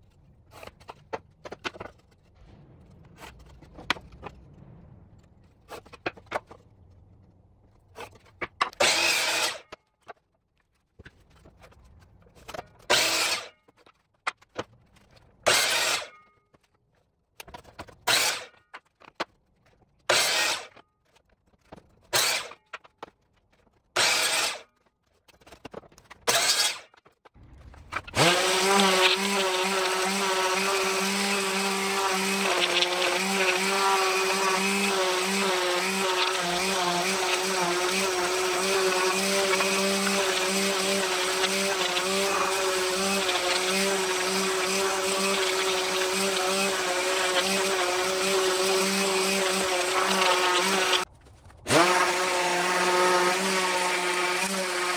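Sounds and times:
miter saw cutting wood: 8.6 - 9.8, 12.9 - 13.6, 15.4 - 16.2, 18.0 - 18.6, 20.1 - 20.8, 22.1 - 22.8, 24.0 - 24.7, 26.3 - 27.0, 27.7 - 54.9
orbit sander whining: 27.7 - 51.1, 51.7 - 54.9.

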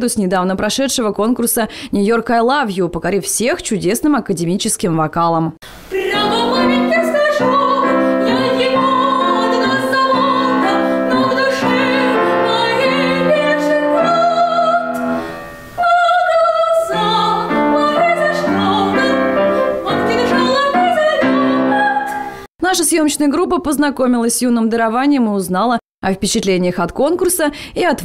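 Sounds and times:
girl singing operatically: 5.9 - 15.1, 15.8 - 22.4
grand piano: 6.0 - 22.4.

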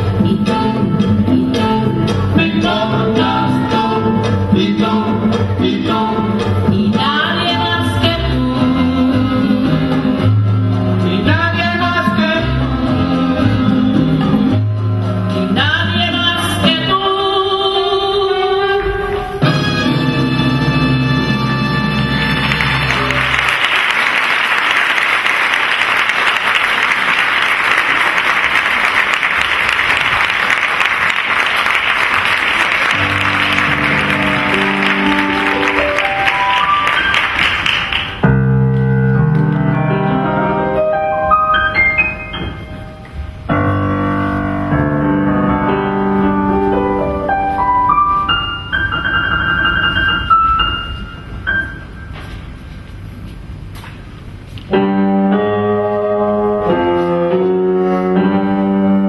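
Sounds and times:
piano playing: 0.0 - 24.4, 26.0 - 59.0
audience applauding: 22.2 - 38.2
low music notes: 32.3 - 53.4, 54.4 - 59.0.

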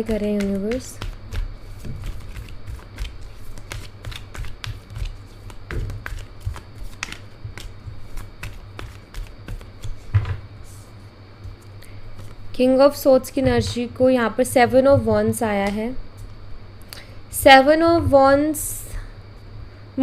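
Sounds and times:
cards shuffling: 0.0 - 10.2.

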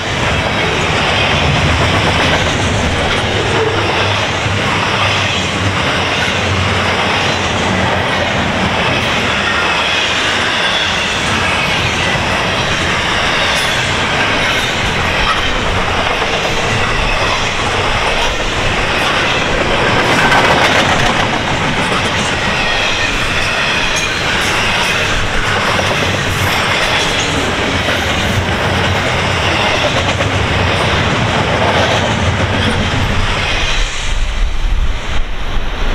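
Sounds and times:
wheels clacking over rails: 0.0 - 33.2
freight train passing: 0.0 - 35.9.

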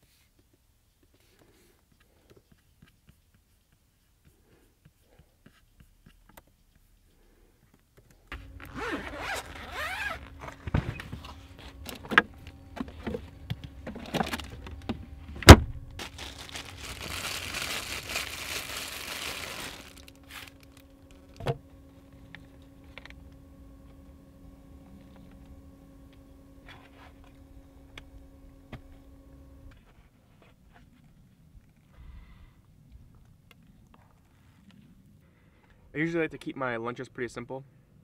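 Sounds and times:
steady low hum: 0.4 - 36.4
packages rustling: 8.4 - 21.4
plastic bag crinkling: 13.8 - 14.9, 15.9 - 21.4.

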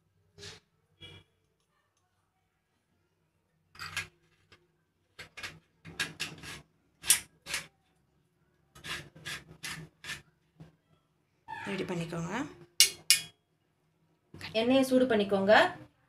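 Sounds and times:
metal threads rasping: 12.8 - 13.3.

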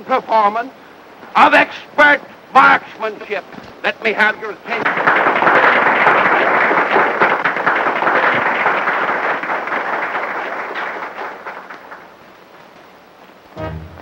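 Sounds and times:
crowd applauding: 4.7 - 12.3.

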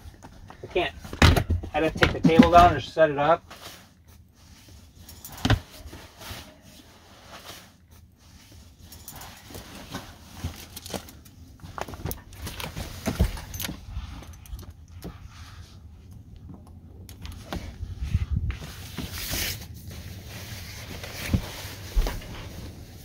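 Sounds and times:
low steady rumble: 0.0 - 23.0
fabric rustling: 3.4 - 16.1, 17.4 - 23.0.

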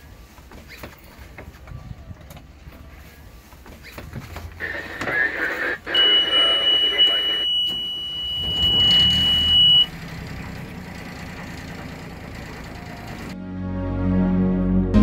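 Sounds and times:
diesel engine idling: 4.5 - 13.4
warning buzzer beep: 5.7 - 9.9
diesel engine cranking: 7.5 - 13.4.

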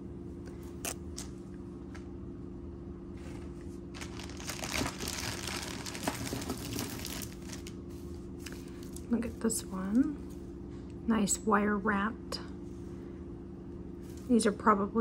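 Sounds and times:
plastic bag crinkling: 3.9 - 9.4.

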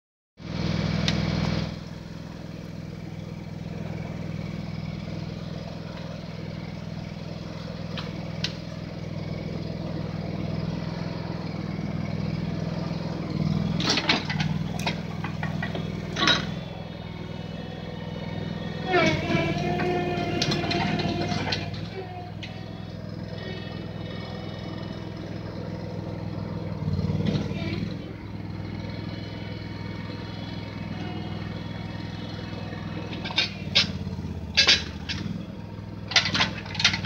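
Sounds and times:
backhoe engine running: 0.4 - 37.0.

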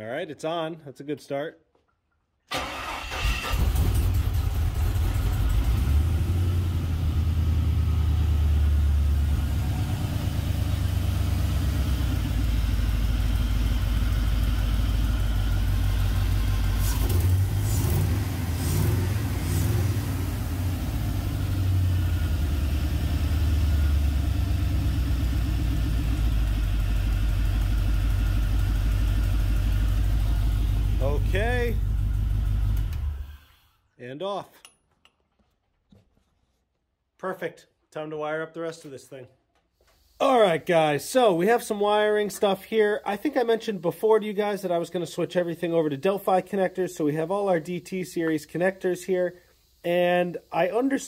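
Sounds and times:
engine cranking and starting: 2.5 - 6.2, 15.3 - 21.6, 25.1 - 33.8
engine idling: 2.5 - 33.5.

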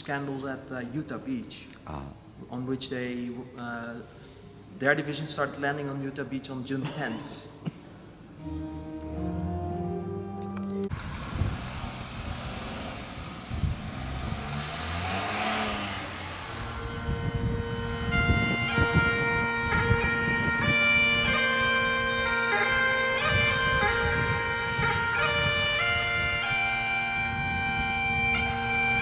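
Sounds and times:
bagpipes playing a melody: 8.4 - 11.0, 16.5 - 29.0
vehicle passing: 8.4 - 29.0.

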